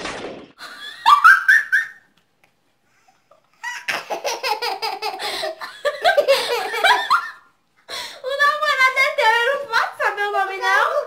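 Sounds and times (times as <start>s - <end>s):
woman and girl laughing: 4.0s - 7.4s.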